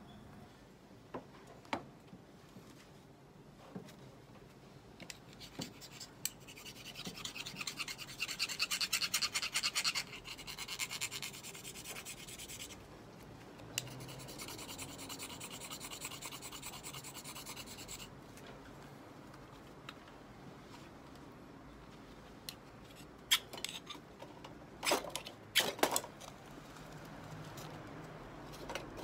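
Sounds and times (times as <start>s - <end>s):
scraper rasping on flint rod: 5.3s - 12.8s, 13.8s - 18.1s.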